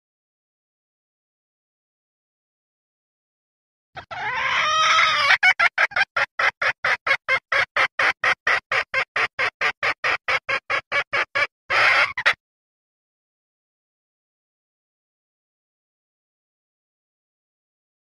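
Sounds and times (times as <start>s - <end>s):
hen clucking: 4.0s - 12.4s.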